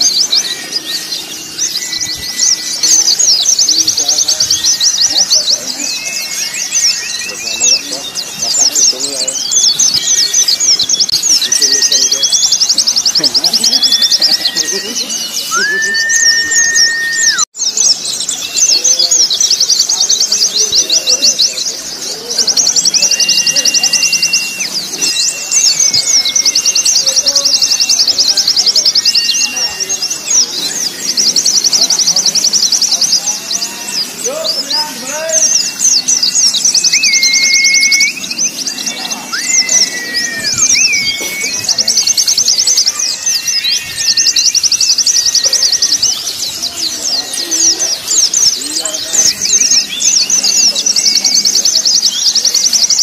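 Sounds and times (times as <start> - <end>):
birds singing fast trills: 0.0 - 53.0
long whistled bird tones: 0.0 - 53.0
thin drawn-out whistles: 22.8 - 28.2, 35.2 - 42.1.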